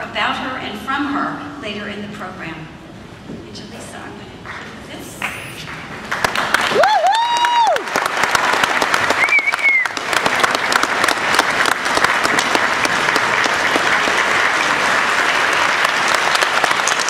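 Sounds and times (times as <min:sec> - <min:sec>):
audience applause: 0:05.6 - 0:17.0.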